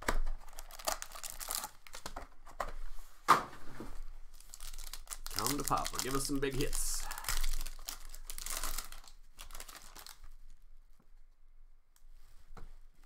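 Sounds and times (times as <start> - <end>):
card pack wrapper tearing: 0.4 - 2.2, 4.4 - 10.3.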